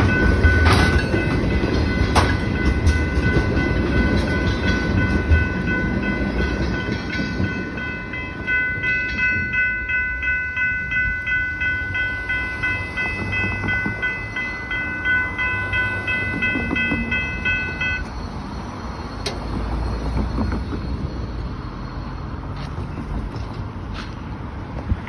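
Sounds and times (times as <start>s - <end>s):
crossing warning bell ringing: 0.0s - 24.2s
freight train rumbling: 0.0s - 25.0s.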